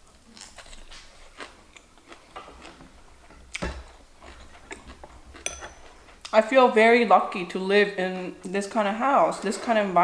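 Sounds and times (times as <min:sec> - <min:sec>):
crunchy chewing: 0:00.0 - 0:06.3.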